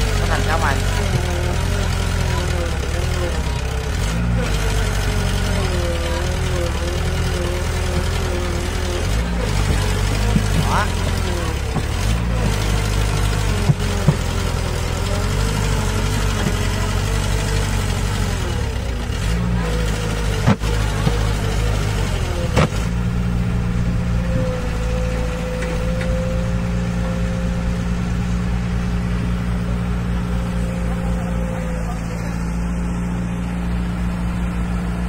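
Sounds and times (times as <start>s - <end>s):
diesel engine running: 0.0s - 35.0s.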